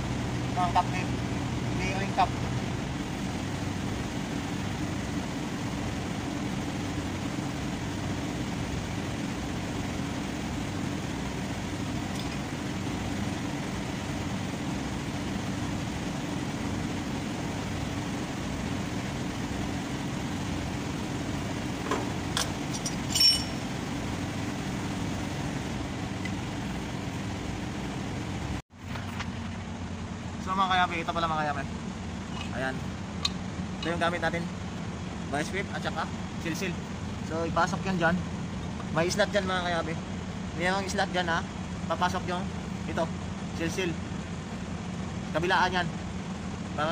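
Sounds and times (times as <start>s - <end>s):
low mechanical hum: 0.0s - 46.9s
metal tool clinks: 22.7s - 23.6s.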